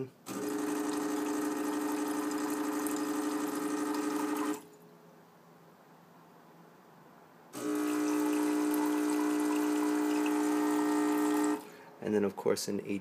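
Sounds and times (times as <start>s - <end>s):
espresso machine pump hum: 0.3s - 4.7s, 7.6s - 11.8s.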